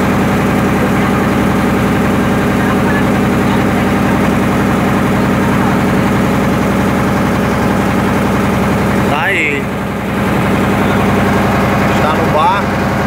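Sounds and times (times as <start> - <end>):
boat diesel engine running: 0.0 - 13.0.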